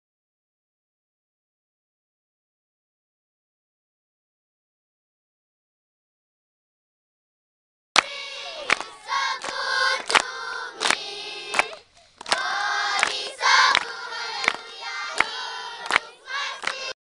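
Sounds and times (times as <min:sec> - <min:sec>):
children singing together: 0:08.0 - 0:17.0
clapping on a steady beat: 0:08.0 - 0:17.0.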